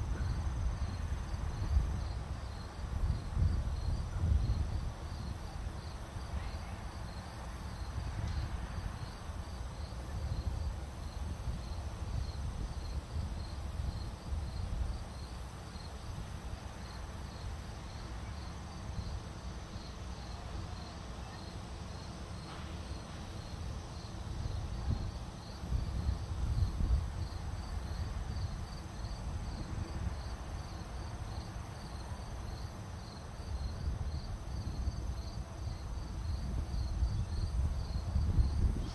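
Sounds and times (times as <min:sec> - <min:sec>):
crickets chirping: 0:00.0 - 0:38.9.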